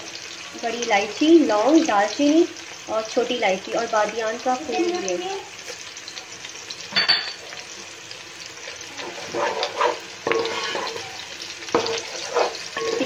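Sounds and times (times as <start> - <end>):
onions sizzling in hot oil: 0.0 - 13.0
spatula scraping a pot: 8.6 - 13.0.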